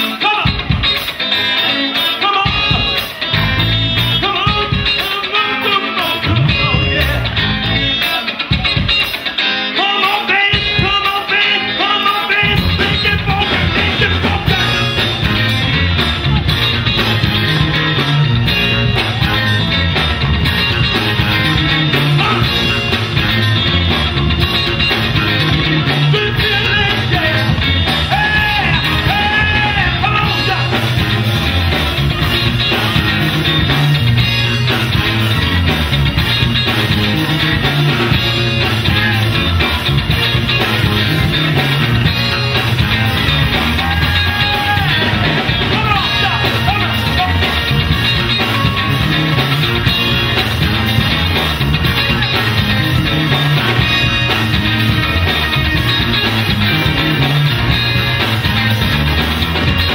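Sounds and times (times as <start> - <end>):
heavy bass: 0.0 - 9.2, 10.5 - 59.9
person singing over a beat: 4.1 - 15.0.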